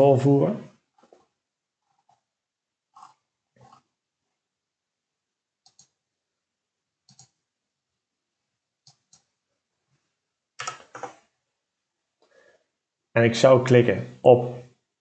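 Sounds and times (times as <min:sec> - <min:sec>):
computer mouse clicking: 0:05.6 - 0:06.0, 0:07.0 - 0:07.4, 0:08.8 - 0:09.3, 0:10.6 - 0:11.2.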